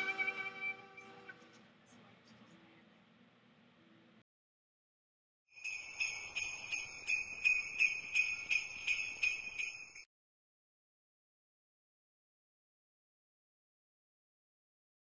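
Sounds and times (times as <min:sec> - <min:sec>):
jingle bells shaken: 0:05.5 - 0:10.1.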